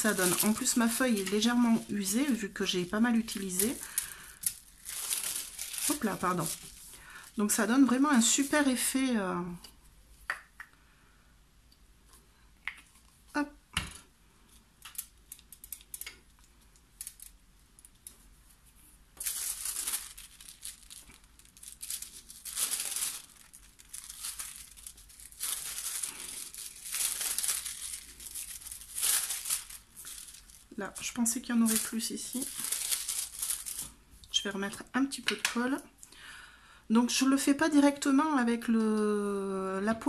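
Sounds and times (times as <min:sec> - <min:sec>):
foil crinkling and rustling: 0:00.0 - 0:08.8, 0:19.2 - 0:34.4.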